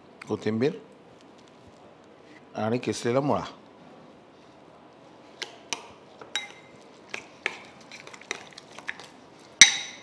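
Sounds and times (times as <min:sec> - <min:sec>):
spoon clinking against glass bowl: 0:06.3 - 0:06.8, 0:09.6 - 0:10.0.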